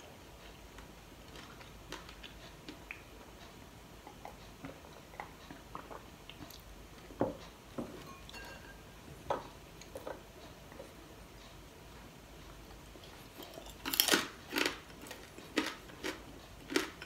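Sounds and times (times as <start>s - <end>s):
chewing: 0.8s - 7.1s, 12.7s - 17.0s.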